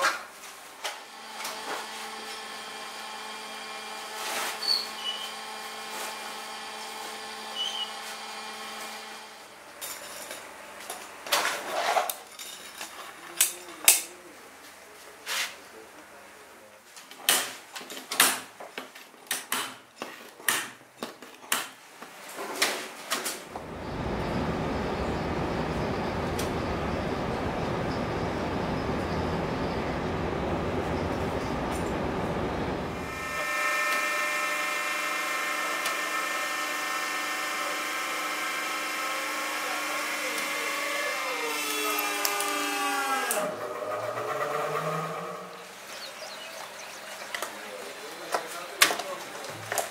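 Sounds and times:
hydraulic pump motor whine: 1.0 - 9.6, 23.5 - 45.6
rumbling noise: 23.5 - 33.4.

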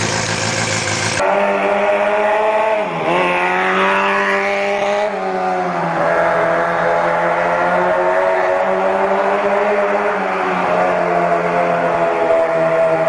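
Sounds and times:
motorbike engine running: 0.0 - 1.2.

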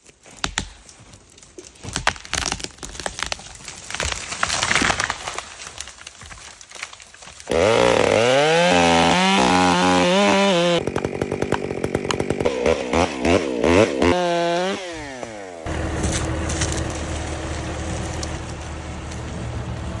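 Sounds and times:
chainsaw revving: 7.5 - 18.6
tractor engine running: 15.6 - 20.0.

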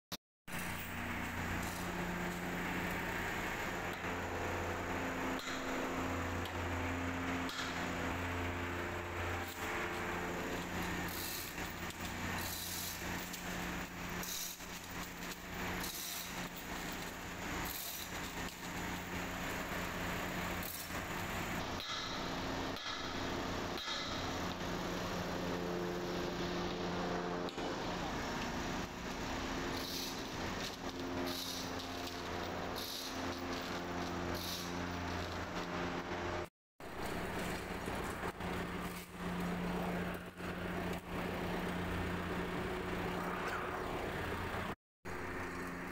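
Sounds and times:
machine hum: 0.5 - 45.9
short bursts of hiss: 29.2 - 34.8.

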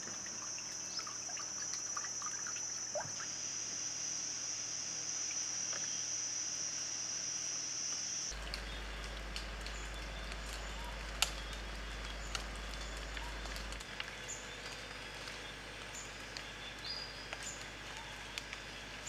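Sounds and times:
steady background hiss: 0.0 - 13.8.

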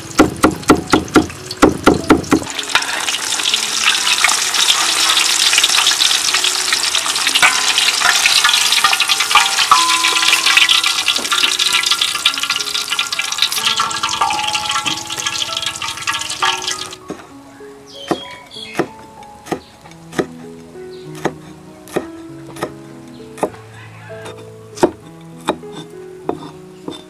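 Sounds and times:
fish sizzling in hot oil: 0.0 - 17.0
cleaver chopping on wooden board: 18.1 - 20.4, 21.1 - 22.8, 24.3 - 27.0.

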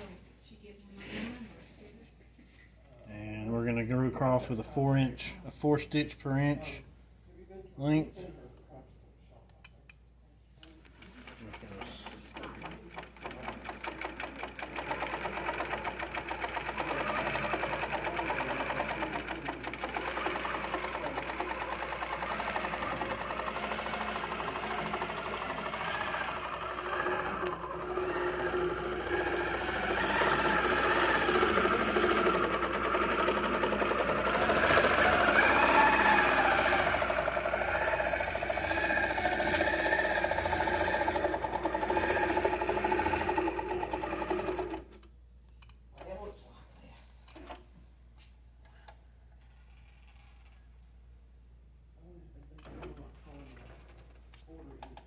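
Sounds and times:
machine motor running: 10.9 - 45.0
quilting machine needle stitching: 10.9 - 45.1.

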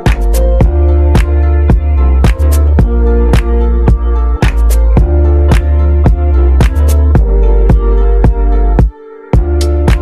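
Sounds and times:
music with drum beat and bass: 0.0 - 10.0.

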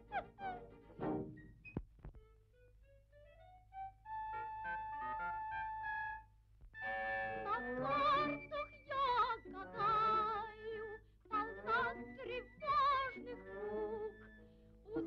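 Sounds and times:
woman singing operatically: 7.3 - 14.3.

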